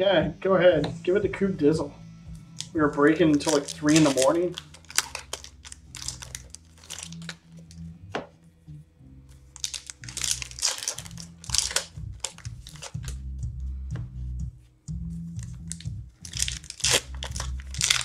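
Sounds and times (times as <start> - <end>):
quiet background music: 0.0 - 18.0
foil wrappers crinkling and tearing: 2.6 - 7.4, 9.6 - 13.1, 15.4 - 18.0.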